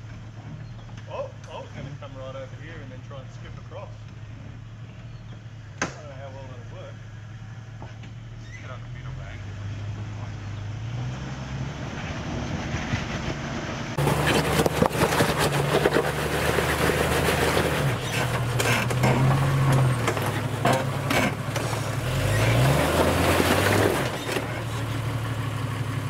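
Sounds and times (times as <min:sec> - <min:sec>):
engine revving: 0:05.7 - 0:26.0
tyres crunching over loose rocks: 0:14.0 - 0:25.2.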